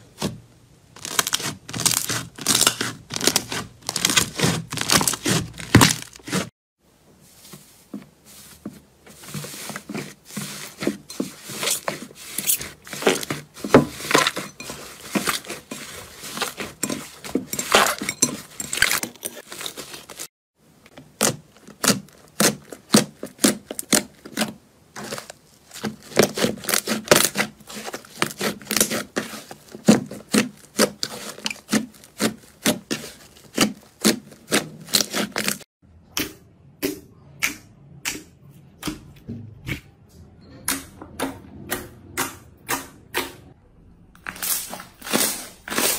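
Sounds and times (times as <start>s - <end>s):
slime crackling and squelching: 0.0s - 6.5s, 8.4s - 20.3s, 20.9s - 35.7s, 44.2s - 45.9s.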